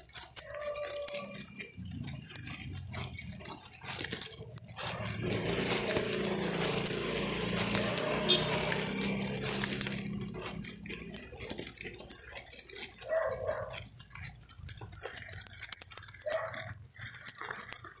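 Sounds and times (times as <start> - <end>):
footsteps on pavement: 0.0 - 17.7
dog barking: 0.4 - 3.2, 12.8 - 14.0, 16.2 - 16.8.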